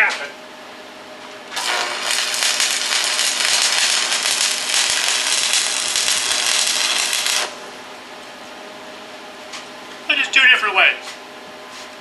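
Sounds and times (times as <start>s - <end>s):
welding arc crackling and hissing: 1.5s - 7.6s.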